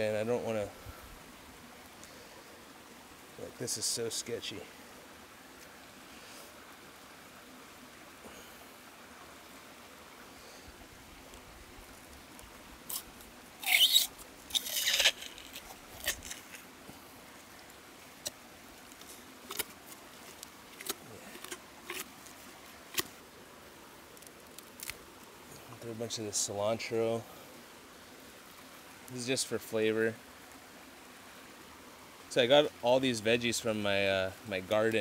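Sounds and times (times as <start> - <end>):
leaves rustling and scraping: 10.2 - 27.4.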